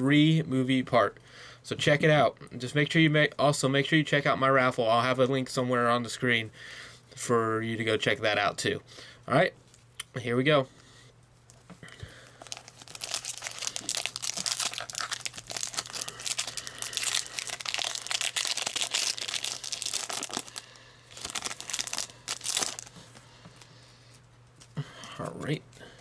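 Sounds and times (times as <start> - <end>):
foil wrapper crinkling and tearing: 12.1 - 23.7.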